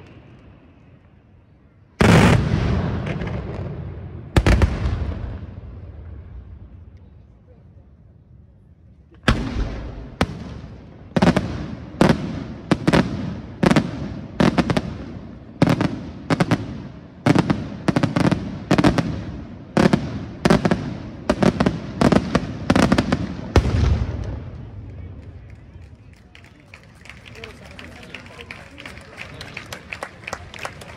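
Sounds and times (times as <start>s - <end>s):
fireworks bangs echoing: 2.0s - 6.6s, 9.2s - 25.2s.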